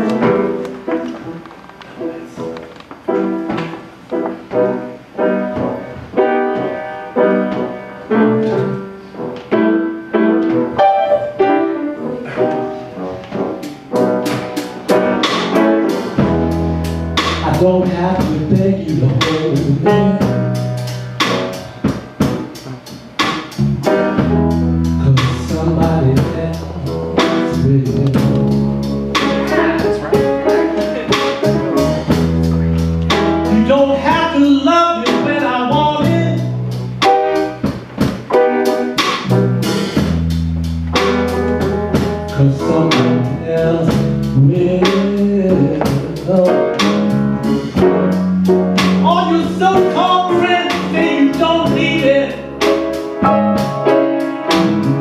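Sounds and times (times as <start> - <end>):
guitar: 0.0 - 55.0
keyboard notes: 0.0 - 55.0
live blues band playing: 0.0 - 55.0
deep bass line: 16.0 - 21.6, 23.5 - 37.7, 39.2 - 53.9, 54.5 - 55.0.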